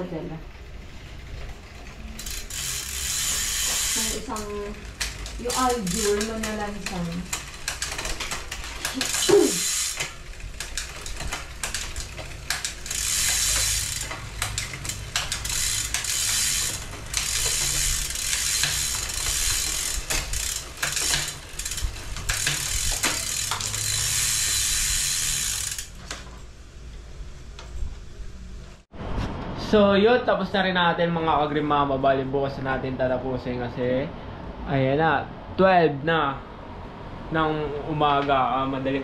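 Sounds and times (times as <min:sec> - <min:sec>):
bike freehub ratcheting buzz: 0:00.6 - 0:26.6.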